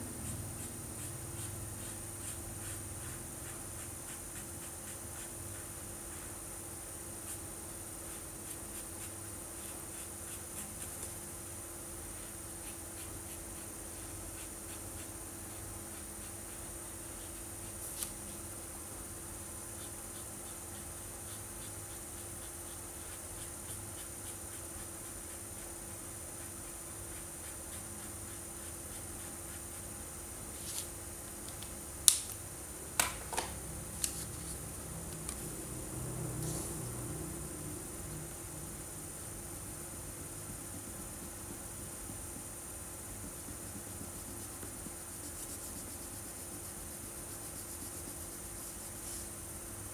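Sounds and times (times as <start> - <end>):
faint steady hiss: 0.0 - 49.9
steady hum: 0.0 - 49.9
marker rubbing on paper: 0.2 - 6.4, 8.1 - 11.2, 12.1 - 18.5, 19.7 - 30.0, 43.2 - 49.3.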